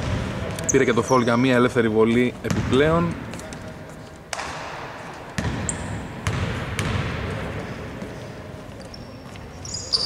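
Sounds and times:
basketball bouncing on hardwood floor: 2.5 - 3.2, 5.4 - 7.6.

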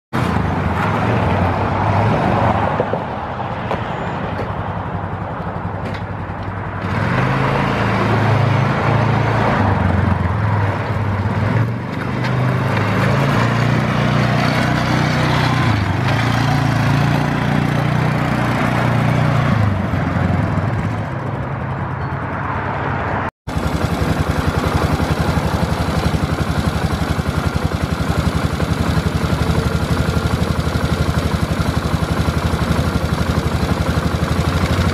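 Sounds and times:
atv engine revving: 6.6 - 21.4, 23.5 - 34.9
atv engine idling: 23.5 - 34.9.

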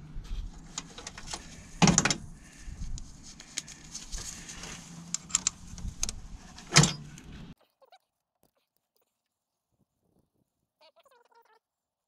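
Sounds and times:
metal clunk: 0.9 - 2.2, 6.5 - 7.2.

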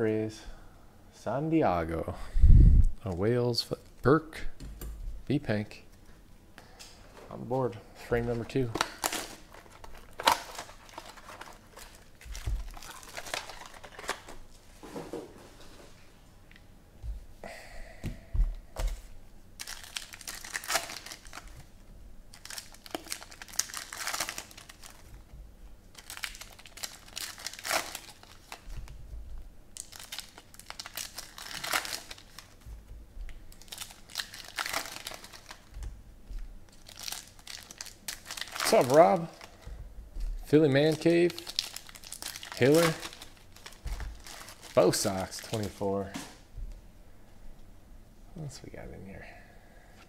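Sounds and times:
cards being handled: 8.2 - 14.4
plastic wrappers crinkling and tearing: 8.3 - 14.5, 19.6 - 21.7, 22.3 - 25.3, 25.9 - 29.0, 29.7 - 32.7, 33.3 - 46.2.

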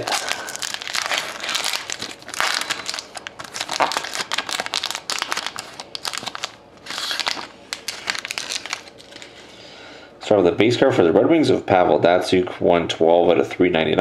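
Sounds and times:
foil wrapper crinkling and tearing: 0.0 - 9.4.

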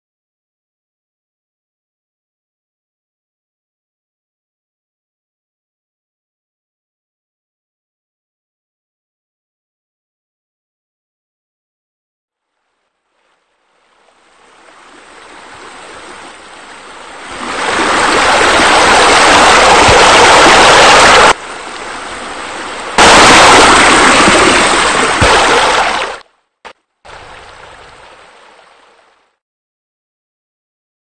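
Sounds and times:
rushing water feature: 13.0 - 26.3, 27.1 - 29.4.

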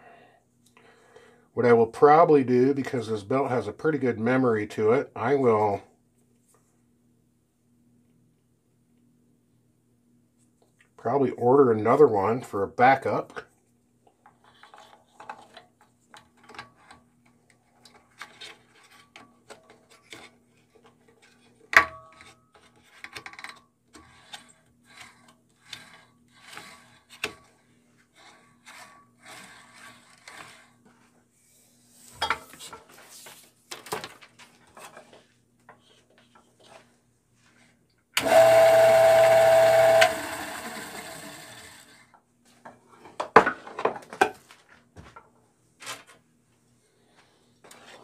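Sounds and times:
belt rubbing and scraping: 24.0 - 27.2, 28.0 - 31.2.

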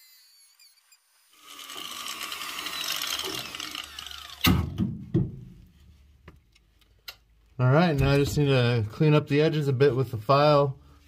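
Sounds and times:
angle grinder cutting steel: 0.0 - 4.5.

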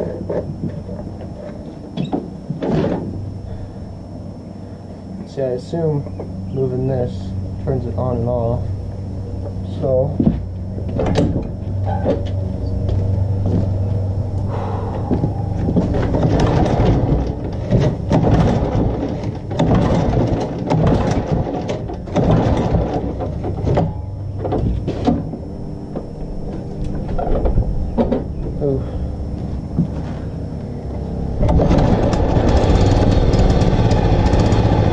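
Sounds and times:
mower engine turning over: 14.4 - 25.4, 26.3 - 34.9.

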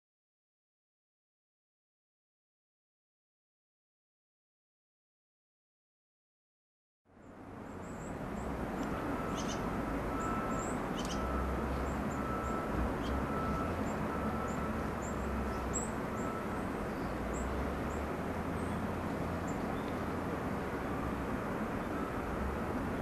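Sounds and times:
outdoor rumble and hiss: 7.1 - 23.0
small birds chirping: 7.2 - 23.0.

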